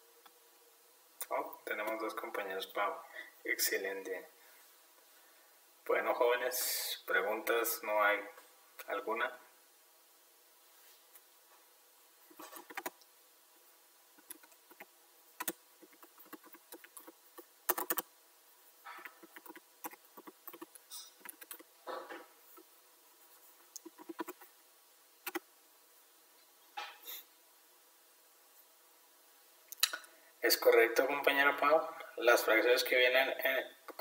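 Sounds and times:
computer keyboard typing: 12.3 - 13.0, 14.2 - 18.0, 19.0 - 21.6, 23.8 - 24.4, 25.2 - 25.4.

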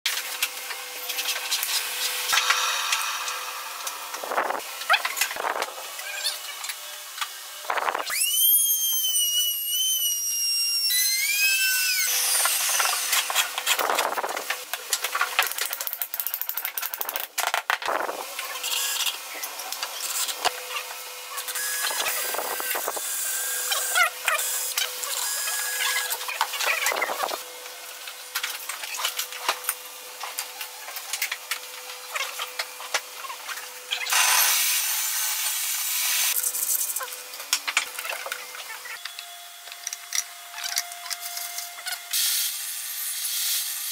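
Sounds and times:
router whining cutting wood: 0.3 - 14.9, 18.2 - 30.8, 31.4 - 43.9.

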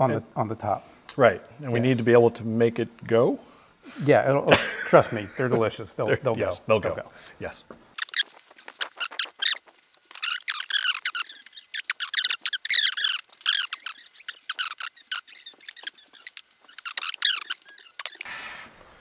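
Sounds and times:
high-pitched squeaky voices chattering: 8.0 - 18.3.

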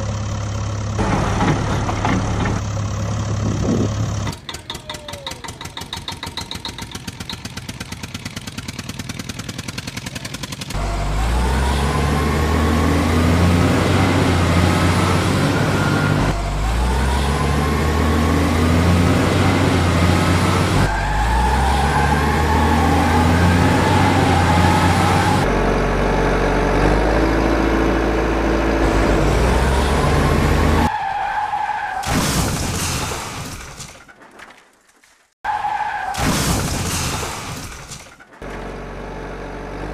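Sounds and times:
engine accelerating with rising whine: 10.8 - 30.9.

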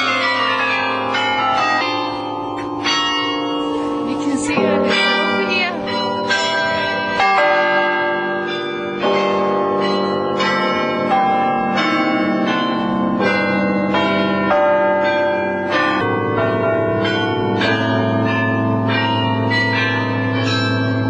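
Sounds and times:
carillon bells playing a tune: 0.0 - 21.0.

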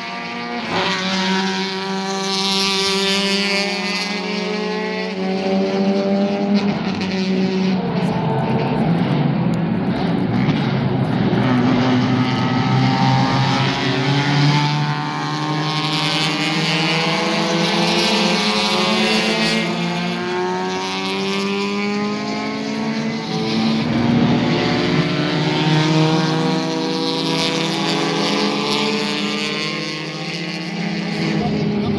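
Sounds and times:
race car engines accelerating: 0.0 - 31.9.

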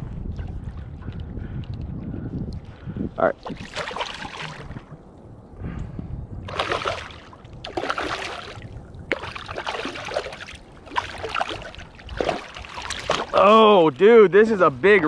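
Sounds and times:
water splashing against a kayak: 3.4 - 5.0, 6.5 - 14.0.

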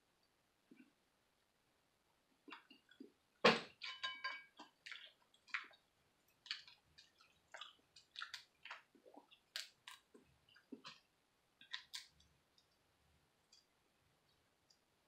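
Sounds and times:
crawfish shells cracking: 4.6 - 11.0, 11.6 - 12.7.

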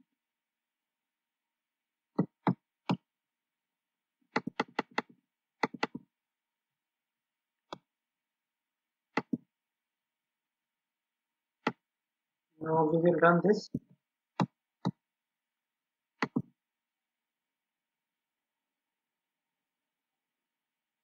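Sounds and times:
keyboard and mouse clicks: 2.2 - 3.1, 4.3 - 6.1, 9.1 - 9.5, 14.4 - 15.0, 16.2 - 16.6.

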